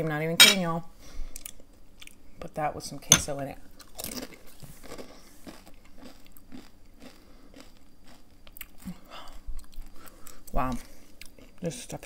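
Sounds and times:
person chewing crunchy chips: 0:03.7 - 0:11.7.

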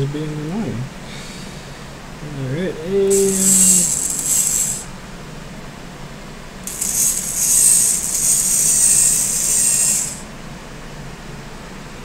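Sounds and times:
robot arm motors whirring: 0:03.1 - 0:04.9, 0:06.6 - 0:10.3.

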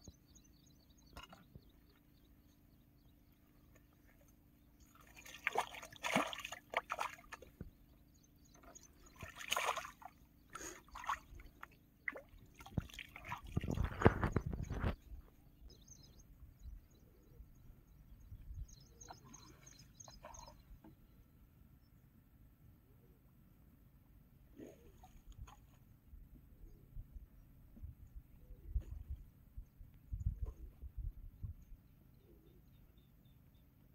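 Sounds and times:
water splashing and sloshing: 0:03.6 - 0:07.8, 0:08.4 - 0:15.3, 0:24.6 - 0:25.9.

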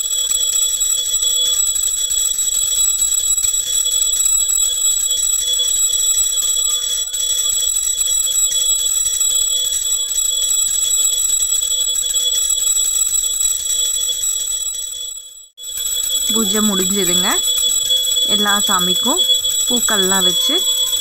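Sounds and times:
brass hand bell ringing: 0:15.8 - 0:21.0.

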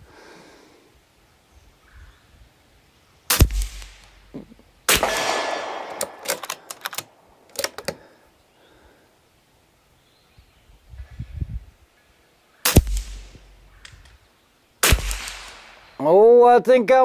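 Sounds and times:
rifle shots: 0:03.3 - 0:04.1, 0:04.9 - 0:07.2, 0:12.7 - 0:13.5, 0:14.8 - 0:16.0
rifle bolt clicks: 0:04.9 - 0:08.0, 0:12.7 - 0:14.2.

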